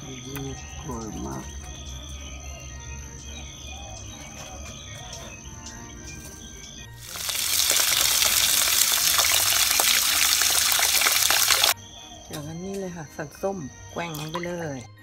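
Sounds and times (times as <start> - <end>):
tap water splashing into bowl: 7.1 - 11.8.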